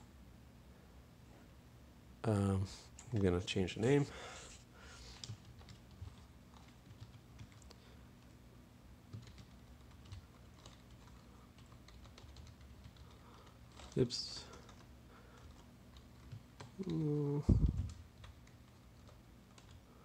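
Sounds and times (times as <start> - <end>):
faint keyboard typing: 2.9 - 3.6, 5.0 - 8.4, 9.1 - 20.0.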